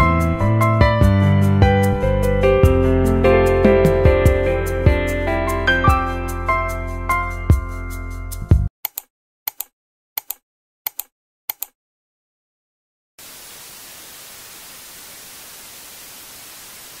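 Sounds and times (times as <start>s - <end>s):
static hiss: 13.2s - 17.0s.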